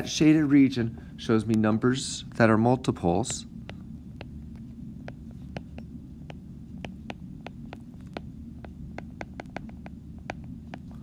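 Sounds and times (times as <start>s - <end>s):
low background hum: 0.0s - 11.0s
stylus tapping on glass screen: 5.0s - 10.9s.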